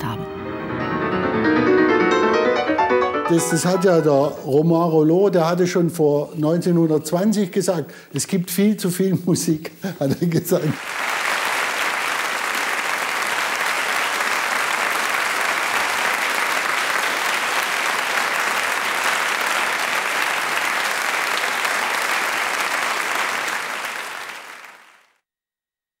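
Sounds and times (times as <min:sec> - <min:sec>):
audience applauding: 0:10.6 - 0:25.2.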